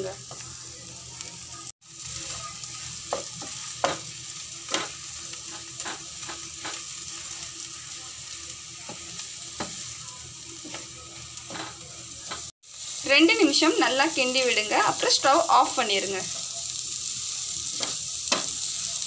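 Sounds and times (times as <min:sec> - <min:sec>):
food sizzling: 0:00.0 - 0:19.0
spatula scraping frying pan: 0:02.2 - 0:07.4.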